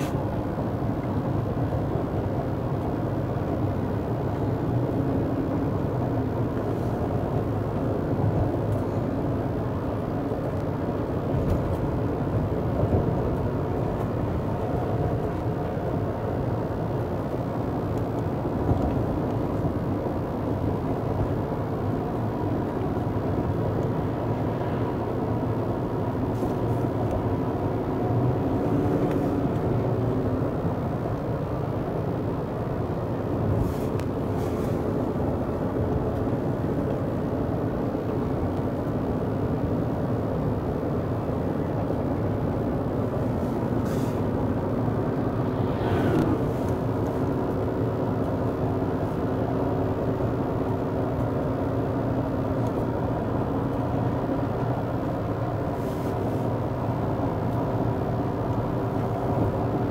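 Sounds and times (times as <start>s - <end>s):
engine and tyre noise in vehicle: 0.0s - 59.9s.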